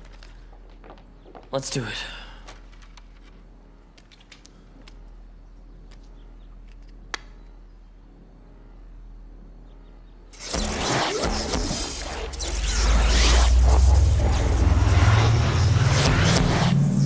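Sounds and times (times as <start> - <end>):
music: 0.0 - 13.6
electric crackling sound effect: 10.4 - 17.0.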